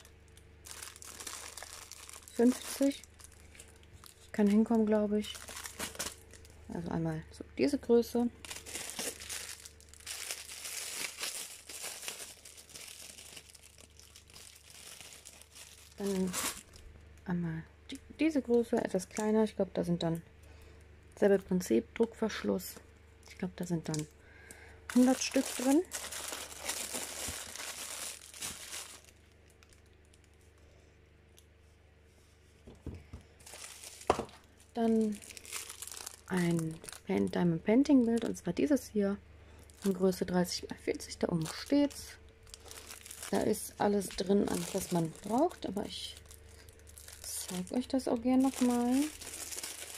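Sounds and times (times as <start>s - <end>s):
plastic bags crinkling: 0.0s - 6.6s, 8.4s - 16.9s, 24.9s - 30.5s, 33.3s - 38.4s, 39.6s - 49.9s.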